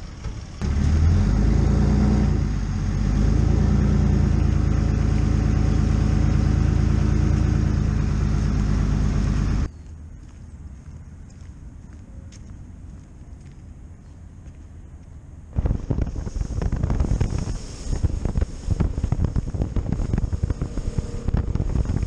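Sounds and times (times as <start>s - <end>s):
vehicle engine running under load: 0.0s - 9.7s, 15.6s - 22.0s.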